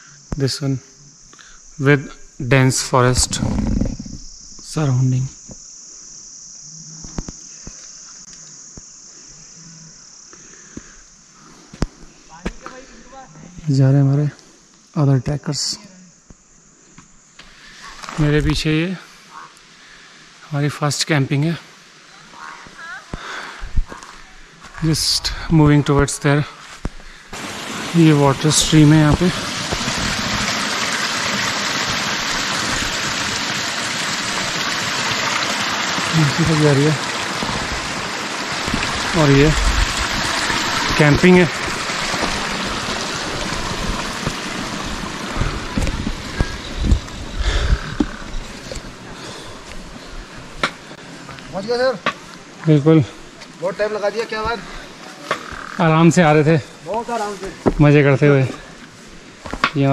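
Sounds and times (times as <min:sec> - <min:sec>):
crickets chirping: 0:00.0 - 0:59.9
stream running over stones: 0:19.6 - 0:59.9.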